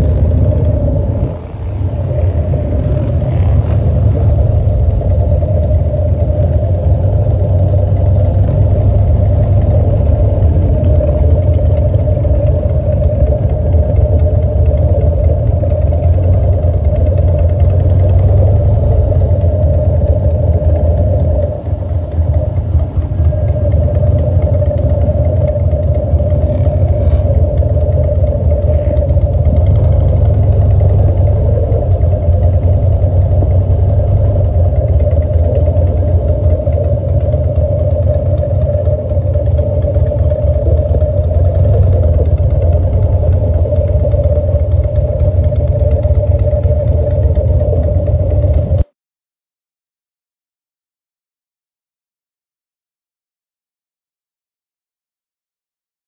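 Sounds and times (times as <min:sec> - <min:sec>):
vehicle engine running: 0:00.0 - 0:48.9.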